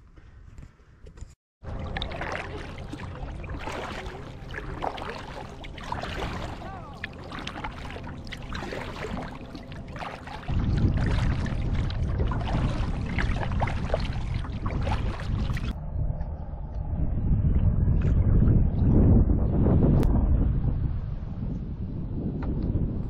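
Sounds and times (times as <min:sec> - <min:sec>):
paddle splashing in water: 0:01.6 - 0:15.8
water washing along hull: 0:01.6 - 0:15.8
low rumble: 0:01.6 - 0:23.0.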